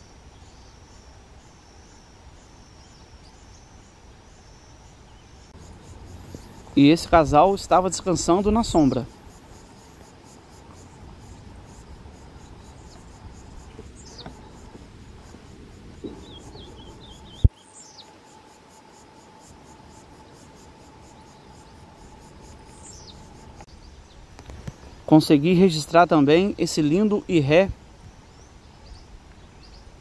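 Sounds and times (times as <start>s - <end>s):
faint steady hum: 0.0s - 25.2s
insect trilling: 1.0s - 23.7s
high downward-sliding bird calls: 4.9s - 18.2s
bird twittering: 5.6s - 14.8s, 16.0s - 18.1s.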